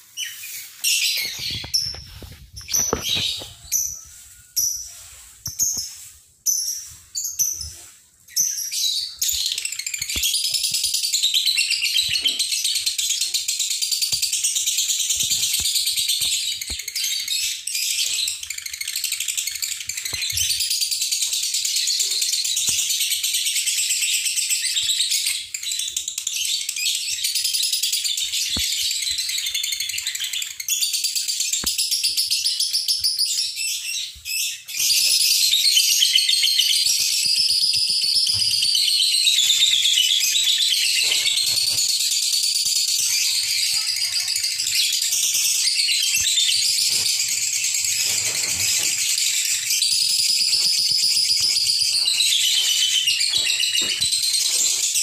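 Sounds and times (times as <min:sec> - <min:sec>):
bird calls: 0:00.1 - 0:04.2, 0:24.1 - 0:55.0
songbird singing: 0:00.2 - 0:21.2.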